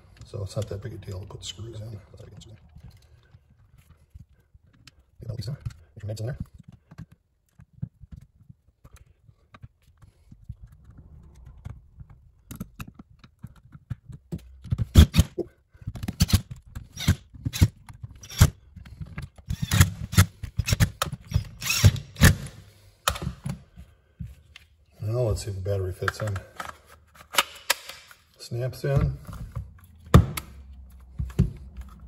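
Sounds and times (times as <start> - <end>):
screws driven into plastic: 16.0 - 23.3.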